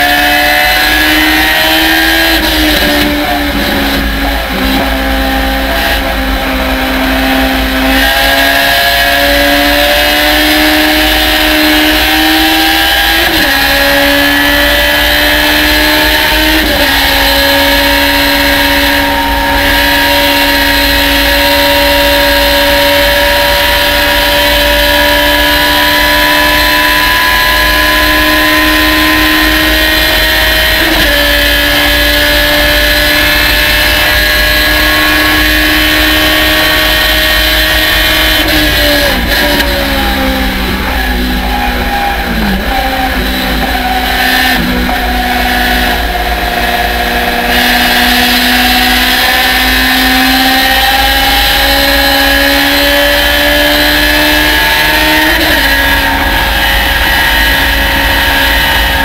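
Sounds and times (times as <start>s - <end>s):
race car engine at full throttle: 0.0s - 59.0s.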